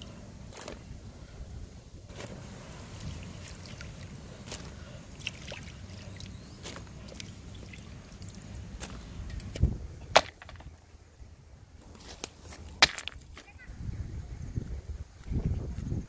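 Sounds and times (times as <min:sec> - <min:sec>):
low outdoor rumble: 0:00.0 - 0:16.0
stone knocking against stone: 0:10.2 - 0:10.7.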